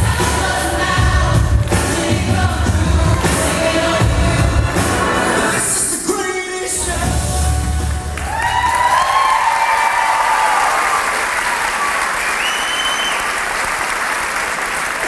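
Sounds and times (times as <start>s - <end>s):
audience applauding and cheering: 7.5s - 15.0s
high whoops: 8.2s - 13.3s.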